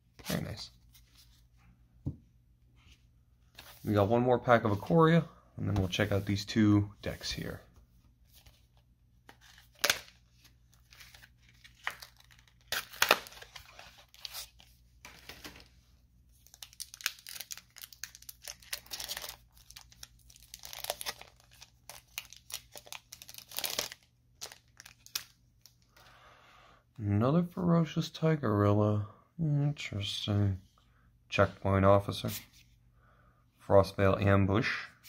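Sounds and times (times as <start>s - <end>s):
foil wrapper crinkling: 16.4s - 25.4s.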